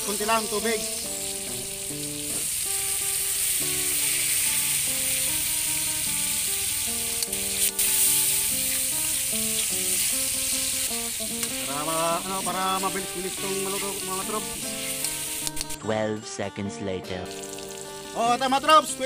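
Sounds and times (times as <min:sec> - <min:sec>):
pork sizzling in a wok: 0:00.0 - 0:15.8, 0:17.3 - 0:19.0
background music with held notes: 0:00.0 - 0:19.0
sharp clicks: 0:15.0 - 0:15.8.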